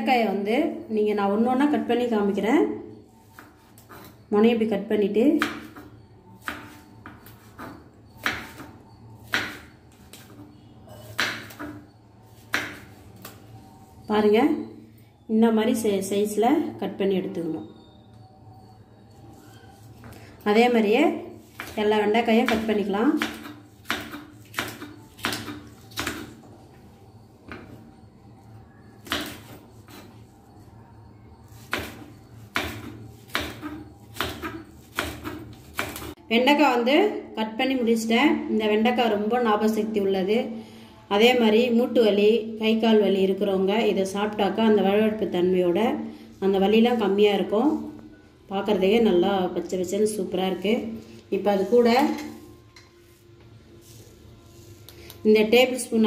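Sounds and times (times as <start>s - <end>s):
knife chopping on wooden board: 5.4s - 10.4s, 11.0s - 11.8s, 12.4s - 12.9s, 22.5s - 26.4s, 29.0s - 30.0s, 31.6s - 36.1s.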